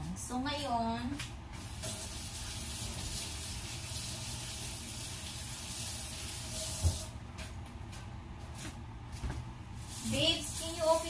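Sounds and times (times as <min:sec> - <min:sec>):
ribs sizzling in hot oil: 0:01.6 - 0:07.1, 0:09.8 - 0:11.0.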